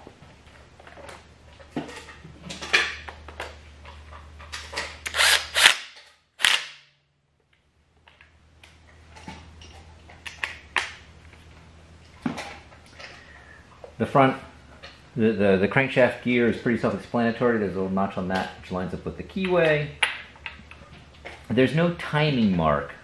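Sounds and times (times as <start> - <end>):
impact wrench rattling: 4.6 - 6.6.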